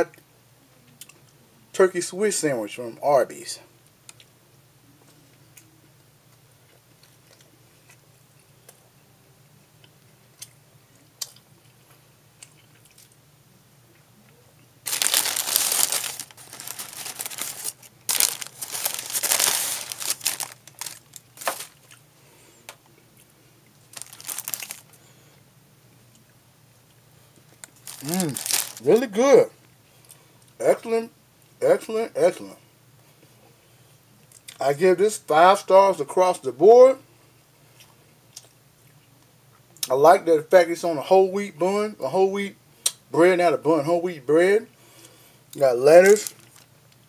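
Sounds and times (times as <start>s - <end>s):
paper wrapper crinkling: 14.8s - 22.0s, 23.9s - 25.0s, 27.6s - 29.3s, 46.0s - 46.7s.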